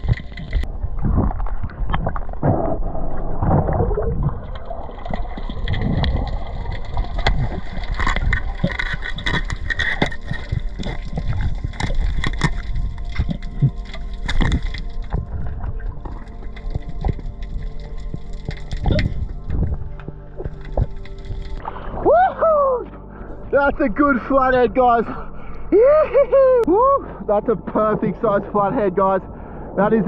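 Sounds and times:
muffled underwater water movement: 0:00.0 - 0:25.7
spear clicks and knocks: 0:07.2 - 0:15.3.

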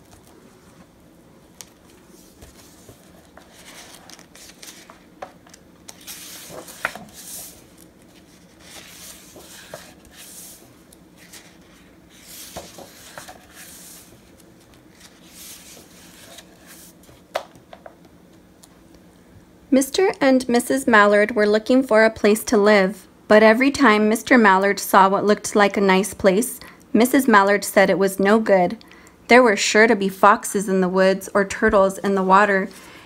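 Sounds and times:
book pages turning: 0:00.0 - 0:17.7.

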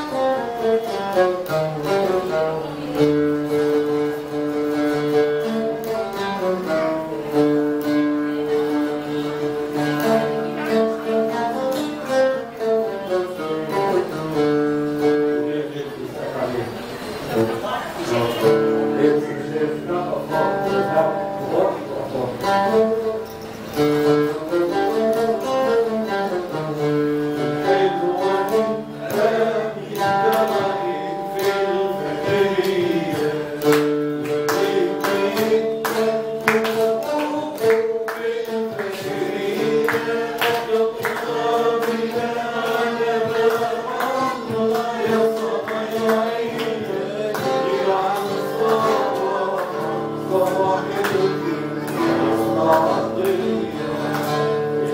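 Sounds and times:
oud plucked and strummed: 0:00.0 - 0:54.9
man singing: 0:18.0 - 0:23.2, 0:24.5 - 0:54.9.

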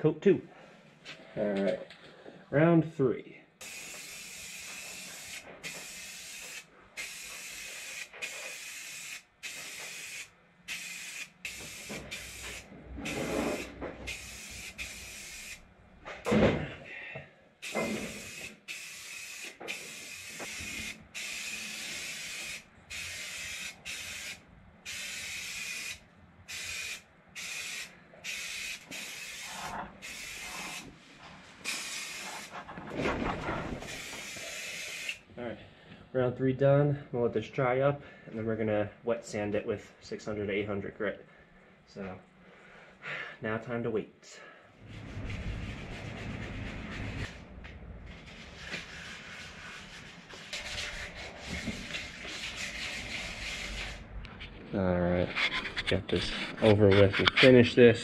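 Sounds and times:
aerosol spray can hissing: 0:03.6 - 0:12.6, 0:13.2 - 0:15.6, 0:17.6 - 0:30.9, 0:31.6 - 0:32.5, 0:33.9 - 0:35.2
thump: 0:16.1 - 0:16.7.

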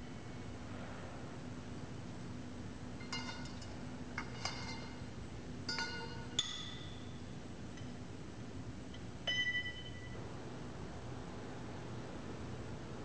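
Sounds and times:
wrench clinking on metal: 0:03.0 - 0:05.1, 0:05.7 - 0:07.2.

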